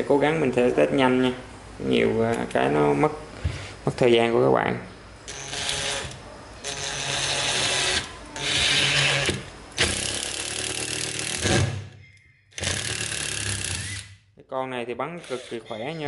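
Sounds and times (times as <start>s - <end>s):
impact driver driving screw: 5.3s - 11.8s, 12.6s - 14.1s.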